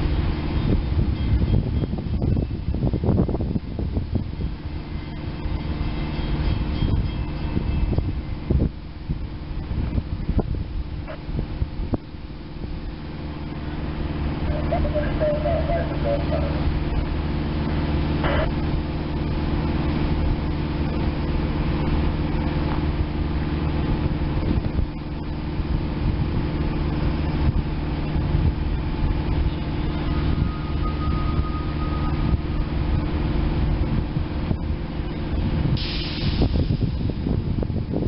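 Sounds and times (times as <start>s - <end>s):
idling engine hum: 0.0s - 38.0s.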